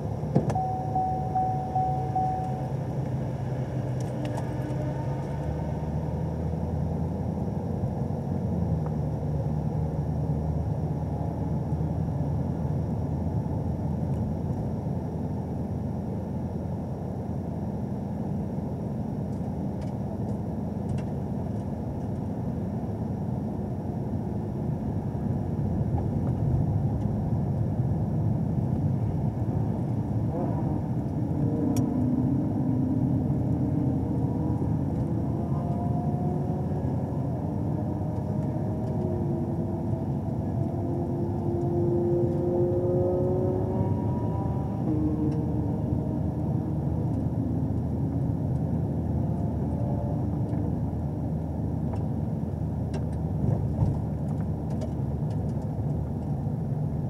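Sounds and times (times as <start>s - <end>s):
car engine running at low revs: 0.0s - 57.0s.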